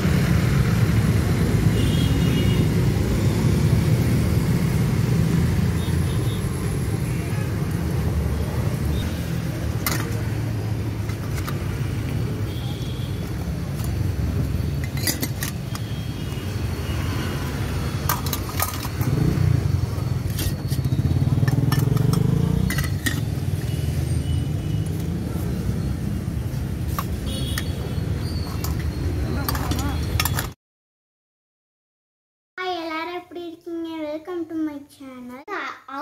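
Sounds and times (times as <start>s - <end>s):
small metal cups clinking: 9.7s - 10.2s, 14.8s - 16.0s, 18.0s - 19.1s, 20.2s - 23.4s, 28.4s - 30.5s.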